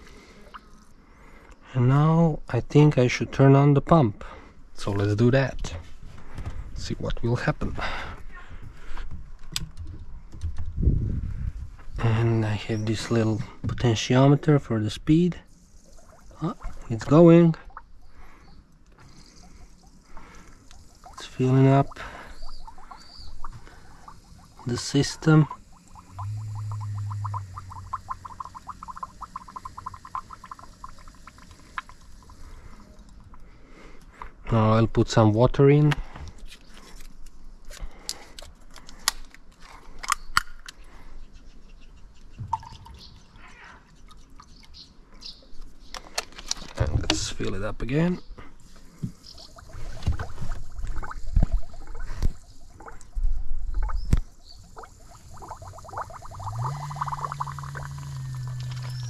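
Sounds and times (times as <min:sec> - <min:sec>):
low pump hum: 0:15.0 - 0:34.5, 0:48.5 - 0:59.0
coolant gurgling and bubbling: 0:15.7 - 0:33.5, 0:49.0 - 0:59.0.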